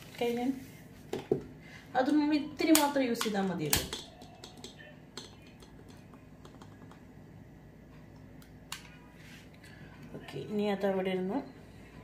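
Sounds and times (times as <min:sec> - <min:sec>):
small items clicking and tapping: 0:02.7 - 0:07.0.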